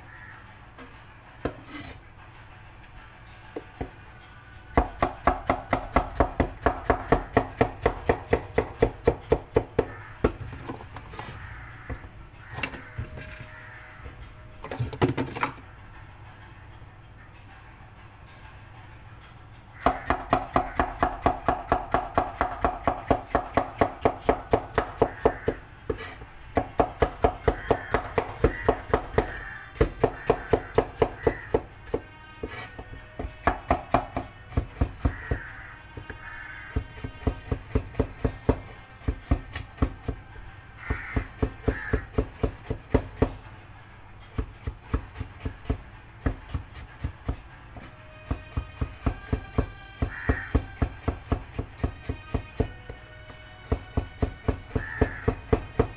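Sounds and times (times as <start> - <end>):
knife chopping on cutting board: 19.8 - 32.8, 53.6 - 55.9.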